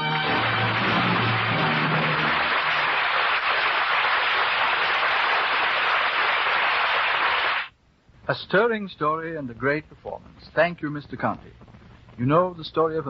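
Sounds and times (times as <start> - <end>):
orchestral music: 0.0 - 3.1
audience applauding: 0.0 - 7.7.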